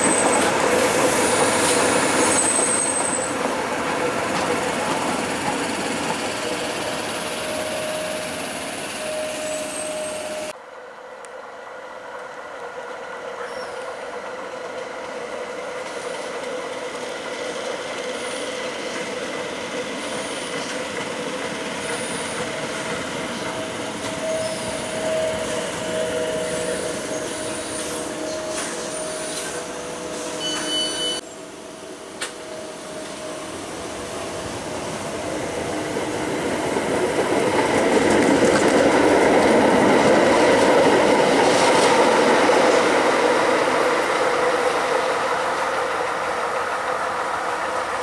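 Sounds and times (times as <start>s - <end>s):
train pulling into platform: 0.0s - 48.0s
train running on track: 0.0s - 48.0s.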